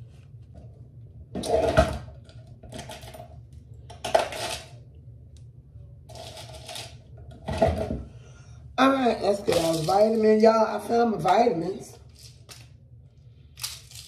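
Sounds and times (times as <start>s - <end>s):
small hard objects clattering: 9.4s - 10.2s.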